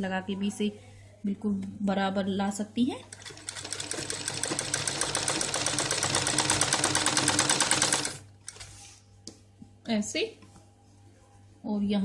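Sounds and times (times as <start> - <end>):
sewing machine stitching: 3.1 - 8.6.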